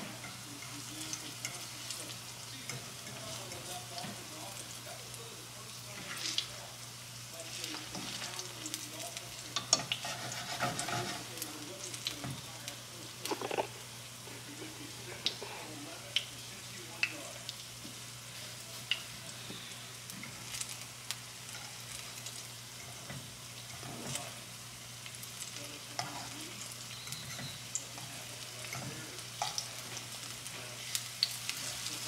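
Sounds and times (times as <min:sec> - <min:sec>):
egg sizzling in a pan: 0:00.0 - 0:32.0
fork scraping a pan: 0:09.6 - 0:11.4, 0:13.3 - 0:13.7.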